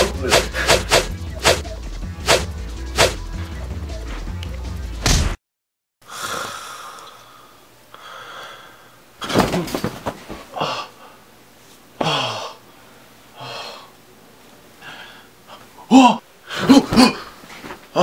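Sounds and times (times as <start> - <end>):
man groaning: 0.0 - 0.8, 15.8 - 17.3
person breathing heavily while sleeping: 0.0 - 0.9, 6.0 - 9.1, 12.0 - 14.0, 14.8 - 15.4.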